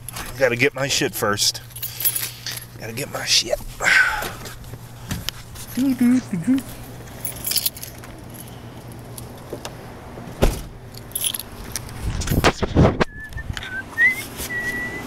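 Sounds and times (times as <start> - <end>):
keys jangling: 1.6 - 2.8, 7.1 - 9.3, 10.9 - 11.8
car door thudding shut: 10.4 - 10.8.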